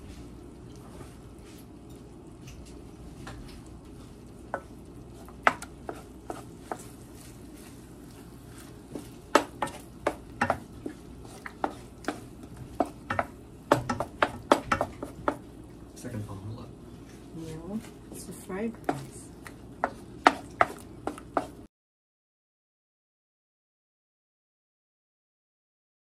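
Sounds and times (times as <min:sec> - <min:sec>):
spoon tapping pan: 0:04.5 - 0:06.9, 0:08.9 - 0:15.5, 0:18.8 - 0:21.6
spoon scraping pan: 0:04.5 - 0:15.4, 0:17.0 - 0:21.6.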